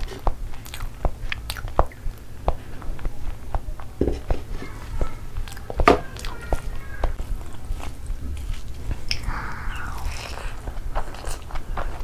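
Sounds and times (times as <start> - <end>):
person chewing: 0.0 - 4.0, 5.4 - 12.0
wet mouth clicks: 0.6 - 3.1, 9.1 - 11.6.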